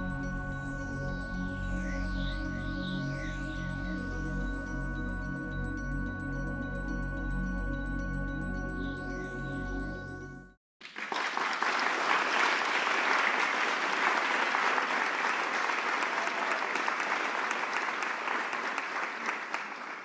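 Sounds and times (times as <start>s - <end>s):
ambient music with held tones: 0.0s - 10.6s
polite applause: 10.8s - 20.0s.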